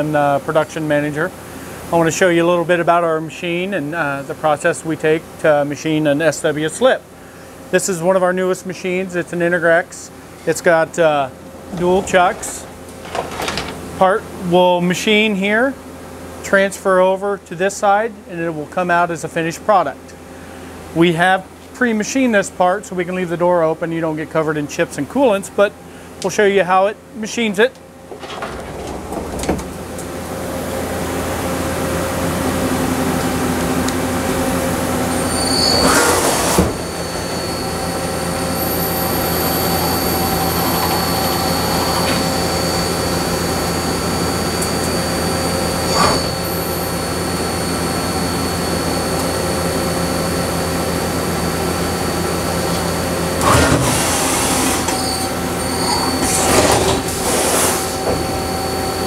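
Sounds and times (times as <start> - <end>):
lathe spindle whine: 30.6 - 59.0.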